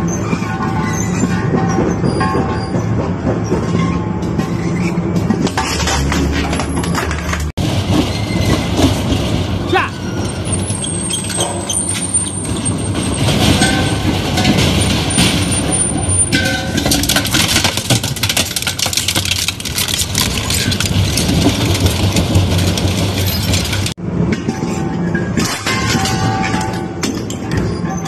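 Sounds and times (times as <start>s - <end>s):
shredder crunching metal scrap: 5.5s - 24.0s.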